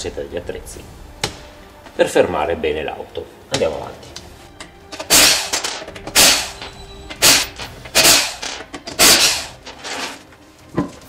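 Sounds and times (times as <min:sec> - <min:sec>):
impact wrench hammering: 0:04.9 - 0:09.6.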